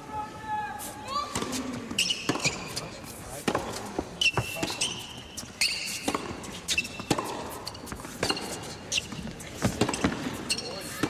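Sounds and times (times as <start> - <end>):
court shoes squeaking: 1.1 - 11.0
tennis ball bounces: 1.3 - 2.8, 3.4 - 4.8, 5.9 - 8.7, 9.6 - 11.0
tennis racket strikes: 3.4 - 5.1, 5.8 - 10.6.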